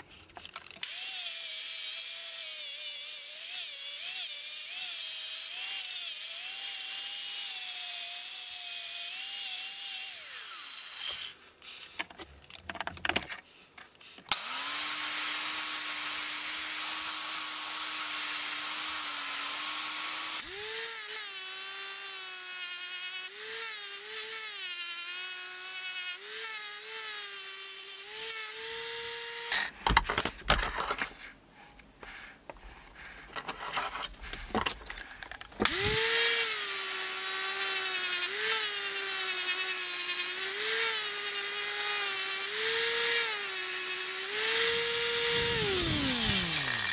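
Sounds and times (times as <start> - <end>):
angle grinder whine: 35.6 - 46.9.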